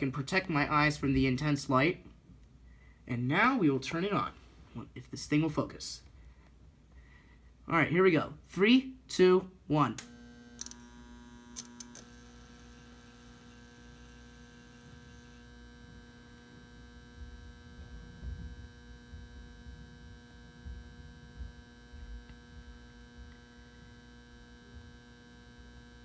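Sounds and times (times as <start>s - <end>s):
lamp ballast humming: 9.9s - 26.0s.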